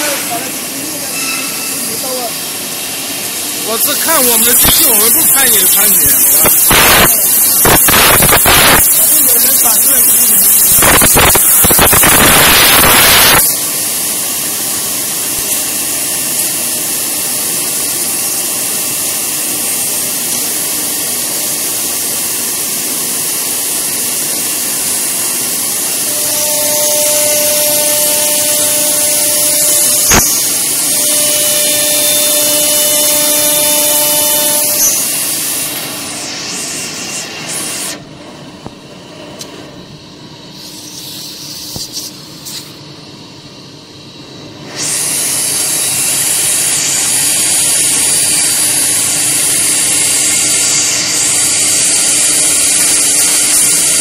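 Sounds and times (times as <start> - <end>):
whining tones: 25.7 - 38.8
wood router hissing: 25.8 - 38.0.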